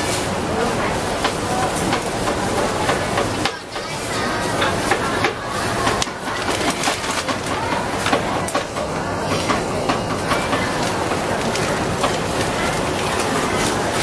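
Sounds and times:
continuous rumble: 0:00.0 - 0:14.0
utensils clicking and knocking: 0:04.5 - 0:14.0.

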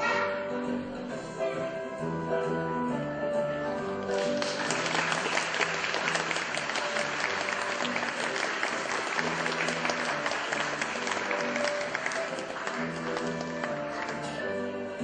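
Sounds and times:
faint backing music: 0:00.0 - 0:15.0
audience applauding: 0:04.0 - 0:14.5.

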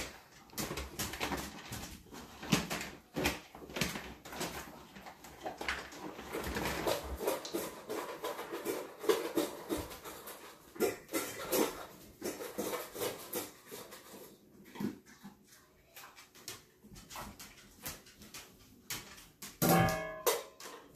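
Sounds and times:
kibble rattling in plastic tub: 0:00.0 - 0:14.5.

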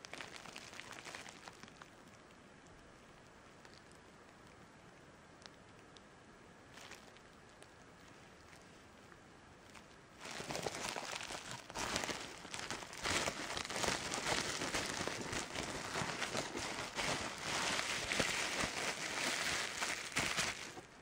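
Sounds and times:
bubble wrap crackling: 0:00.0 - 0:02.2, 0:06.7 - 0:08.8, 0:09.6 - 0:21.0.

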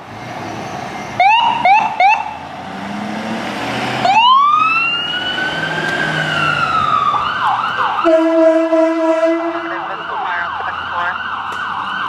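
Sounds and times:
ambulance siren: 0:00.9 - 0:02.5, 0:04.0 - 0:12.0.

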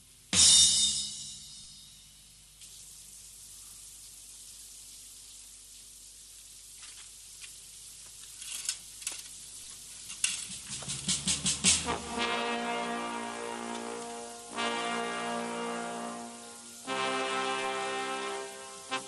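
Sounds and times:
shower running: 0:01.9 - 0:19.0.

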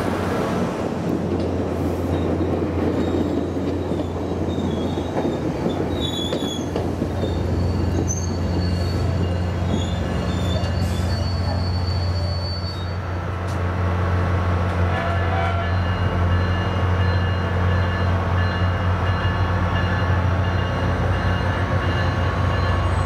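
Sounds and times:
diesel locomotive drone: 0:00.0 - 0:23.0
train coaches rumbling: 0:00.0 - 0:23.0
high wheel squeals: 0:03.0 - 0:13.0.

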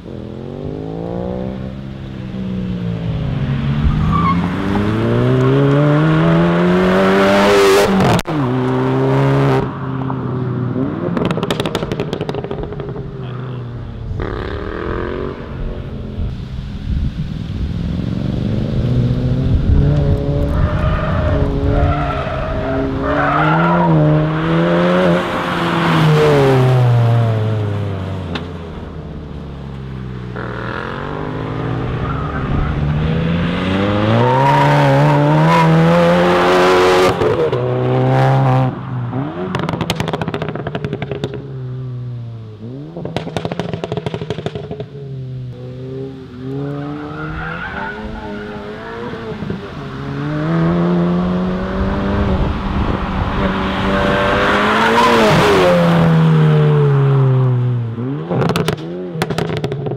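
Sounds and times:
exhaust pop and crackling: 0:11.1 - 0:13.2, 0:28.3 - 0:28.9, 0:39.5 - 0:41.4, 0:43.0 - 0:45.0, 0:58.3 - 0:59.9
car engine accelerating: 0:17.5 - 0:59.9.

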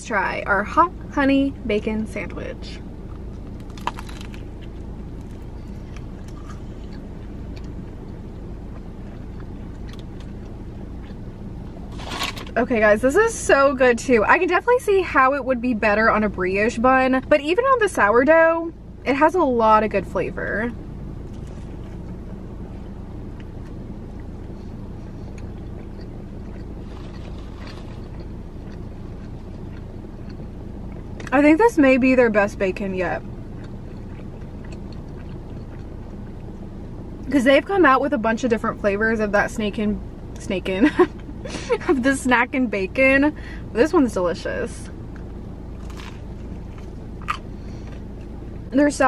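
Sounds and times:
low hum: 0:00.0 - 0:49.0
vehicle engine rumbling: 0:00.0 - 0:49.0
quiet chewing: 0:03.0 - 0:11.9, 0:21.2 - 0:31.4, 0:33.3 - 0:37.3, 0:45.1 - 0:48.7
crisp bread crunching: 0:03.2 - 0:07.8, 0:25.3 - 0:29.8, 0:45.8 - 0:48.3.

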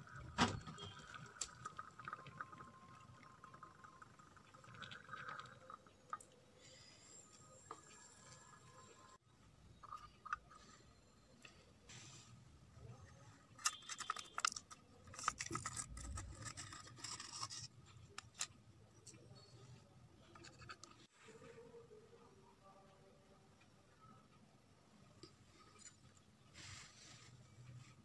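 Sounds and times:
metal tin clicks and scrapes: 0:13.5 - 0:18.6, 0:20.3 - 0:21.1
aluminium foil crinkling: 0:13.6 - 0:18.5.

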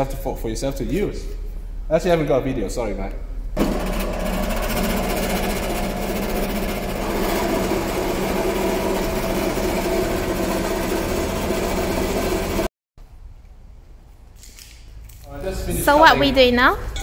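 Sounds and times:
bandsaw motor hum: 0:03.6 - 0:12.7.

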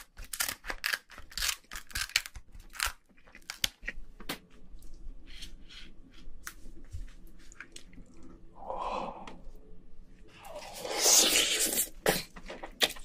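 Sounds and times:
loud wet slurping: 0:10.5 - 0:12.3.

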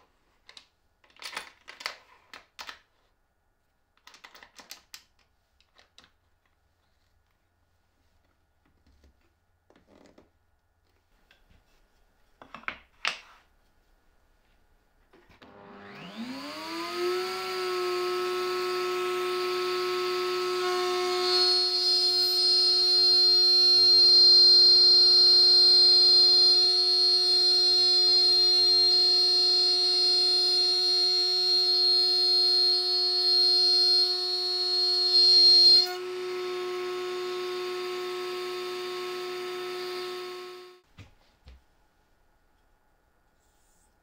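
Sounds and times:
wood router cutting board: 0:15.4 - 0:40.8.

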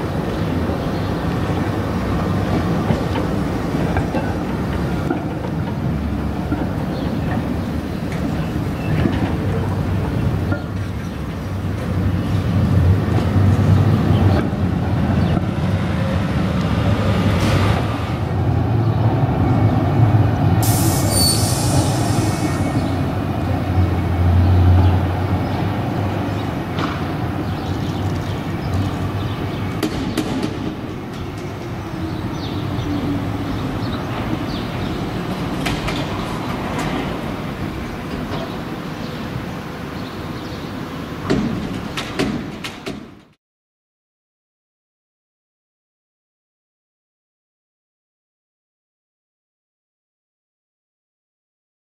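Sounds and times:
tram rumbling on rails: 0:00.0 - 0:43.4
steel wheels squealing on rails: 0:20.6 - 0:23.2.

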